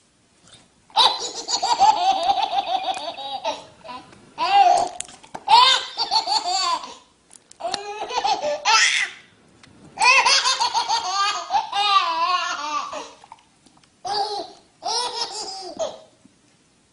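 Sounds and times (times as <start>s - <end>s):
baby laughing: 0.9s - 7.0s, 7.6s - 9.2s, 10.0s - 13.2s, 14.0s - 16.1s.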